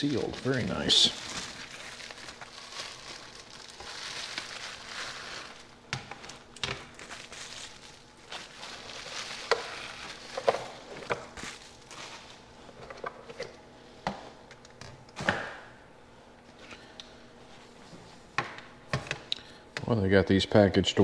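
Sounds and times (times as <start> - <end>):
plastic packaging crinkling: 0.0 - 12.4.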